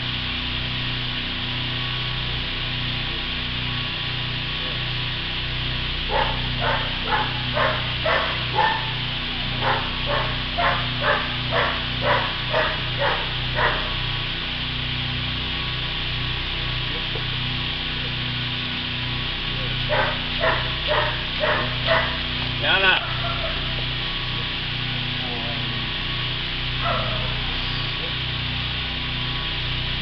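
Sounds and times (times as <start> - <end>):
steady machine hum: 0.0 - 30.0
dog barking: 6.1 - 14.1, 19.6 - 22.4, 23.0 - 23.9, 26.8 - 28.0.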